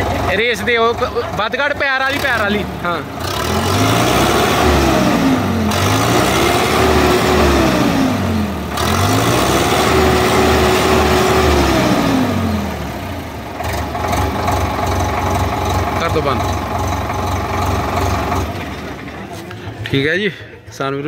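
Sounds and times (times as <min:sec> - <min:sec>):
tractor diesel engine revving: 0:00.0 - 0:21.0.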